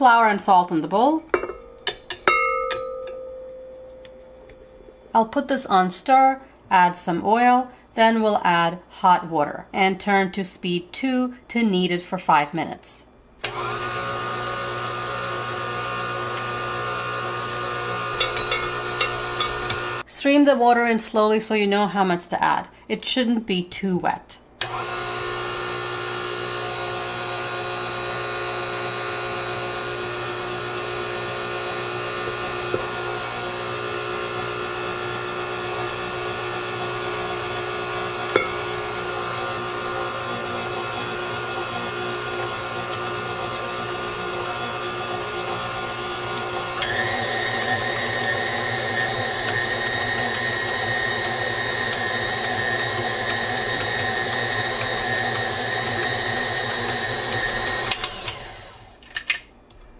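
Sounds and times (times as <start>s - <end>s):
stand mixer motor whine: 13.4s - 20.0s, 24.6s - 59.0s.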